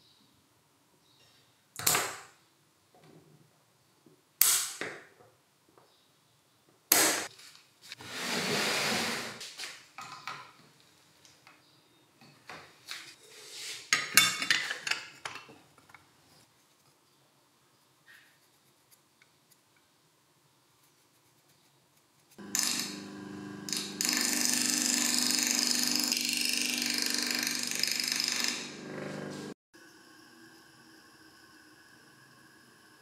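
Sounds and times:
hiss: 29.8 - 33.0.

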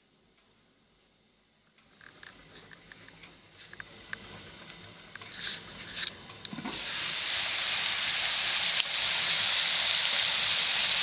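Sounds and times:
mushrooms sizzling in pan: 6.3 - 11.0.

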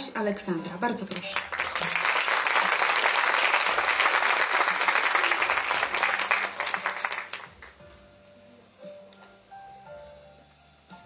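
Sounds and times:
audience applauding: 1.1 - 7.8.

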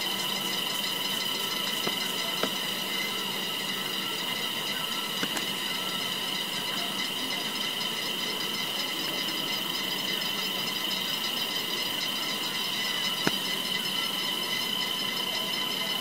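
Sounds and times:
cicadas buzzing: 0.0 - 16.0
sharp click: 5.2 - 5.6, 13.2 - 13.5.

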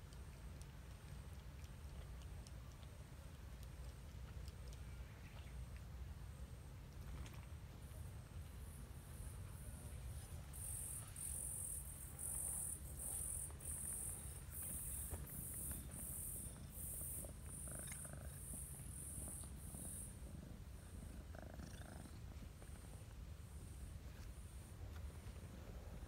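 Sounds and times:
cats purring: 0.0 - 26.0
insects chirping: 8.5 - 22.1.

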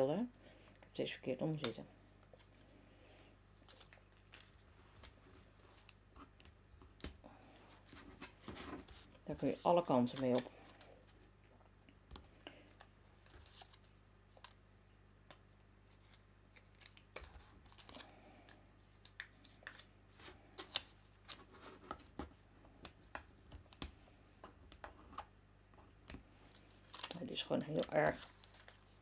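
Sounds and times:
paper rustling: 26.4 - 29.0.

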